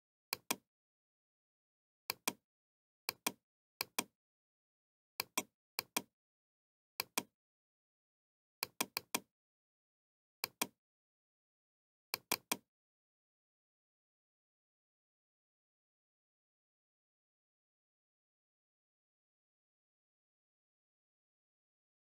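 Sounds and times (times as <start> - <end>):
computer mouse clicking: 0.3 - 0.6, 3.1 - 4.1, 5.2 - 6.1, 7.0 - 7.3, 8.6 - 9.3, 10.4 - 10.8, 12.2 - 12.6.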